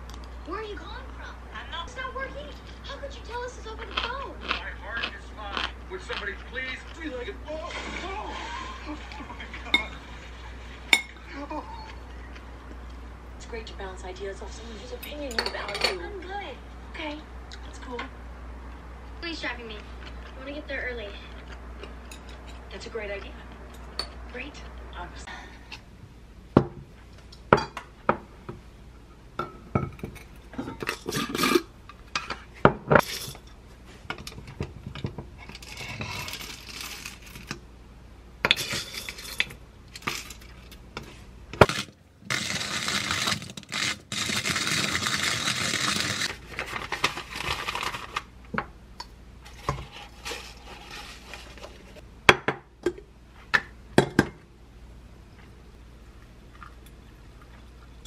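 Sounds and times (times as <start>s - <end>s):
hand grinder crunching beans: 3.8s - 7.0s, 35.5s - 37.6s, 41.6s - 48.3s.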